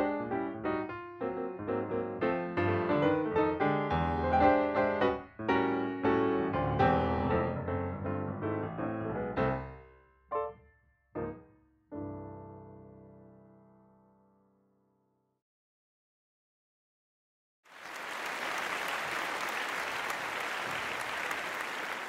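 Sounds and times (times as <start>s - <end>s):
piano music: 0.0s - 14.8s.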